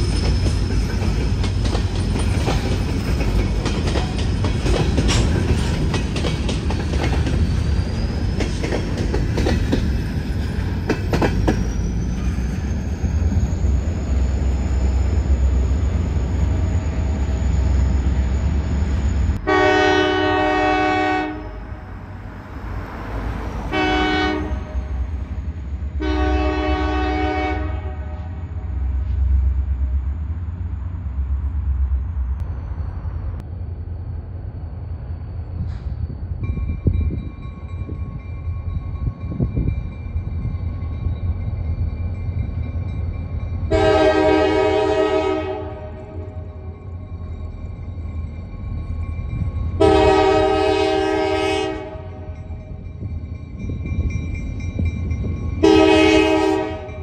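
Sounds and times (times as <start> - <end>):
freight train rumbling past: 0.0 - 57.0
high wheel squeal: 6.7 - 19.4
locomotive horn blasts: 19.4 - 21.8, 23.7 - 25.1, 26.0 - 28.8, 43.7 - 46.7, 49.8 - 52.5, 55.6 - 57.0.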